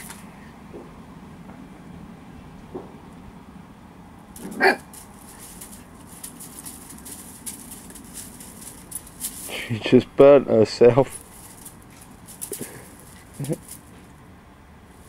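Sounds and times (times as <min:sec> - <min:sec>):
puppy barking: 0:04.4 - 0:05.1
puppy yip: 0:04.5 - 0:04.9.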